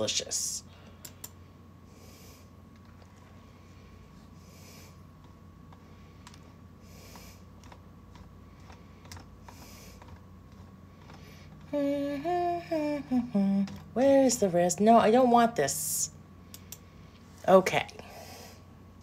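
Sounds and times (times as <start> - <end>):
typing on computer keyboard: 7.6 - 11.2
woman's voice: 11.7 - 16.2, 17.4 - 18.1.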